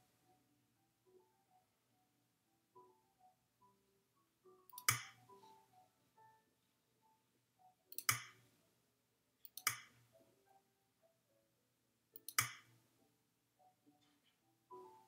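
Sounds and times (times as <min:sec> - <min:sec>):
button clicks: 0:04.7 - 0:05.3, 0:07.9 - 0:08.4, 0:09.5 - 0:10.0, 0:12.2 - 0:12.7.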